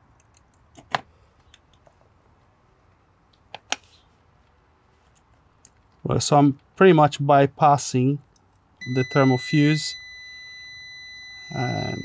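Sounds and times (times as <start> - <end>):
metal probe tips clicking on terminals: 0.1 - 0.9.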